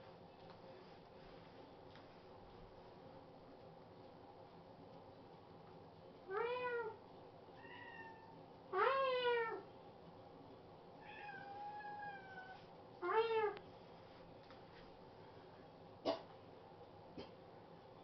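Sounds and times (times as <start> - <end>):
cat meowing: 6.3 - 7.0, 7.6 - 9.7, 11.0 - 13.6.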